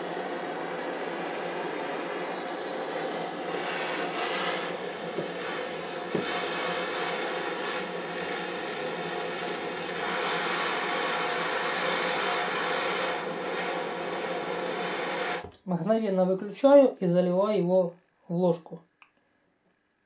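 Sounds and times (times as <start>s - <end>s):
gas torch hissing: 0.0s - 15.6s.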